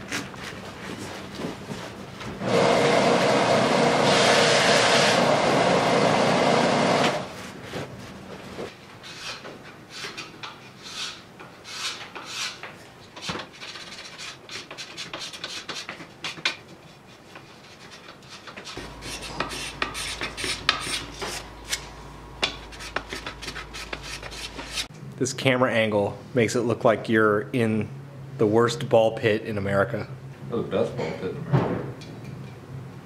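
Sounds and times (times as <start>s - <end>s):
hands scraping wood veneer: 22.6s - 24.9s.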